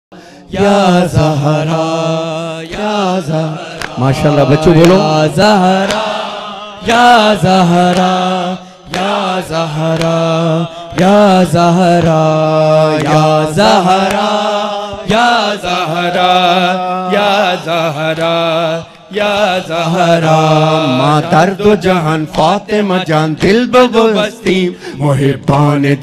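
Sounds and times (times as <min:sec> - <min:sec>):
men chanting into microphones: 0:00.2 - 0:26.0
lead voice singing wavering phrases: 0:00.4 - 0:26.0.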